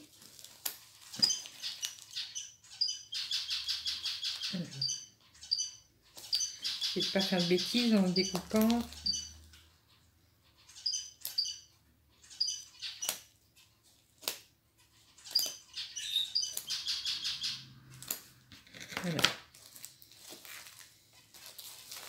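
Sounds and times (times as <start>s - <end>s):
small bird chirping: 0.8s - 18.4s
package being cut open: 18.1s - 19.4s.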